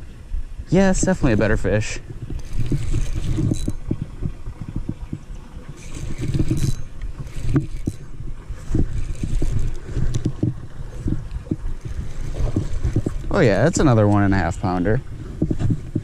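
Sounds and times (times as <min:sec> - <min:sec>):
wind buffeting microphone: 0:00.0 - 0:16.0
rod and reel handling noise: 0:00.8 - 0:16.0
fishing reel cranking: 0:01.2 - 0:04.9, 0:05.6 - 0:13.4.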